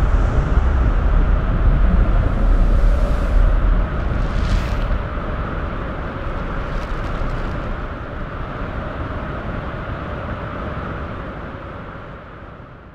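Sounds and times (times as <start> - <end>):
rushing noise with low rumble: 0.0 - 12.8.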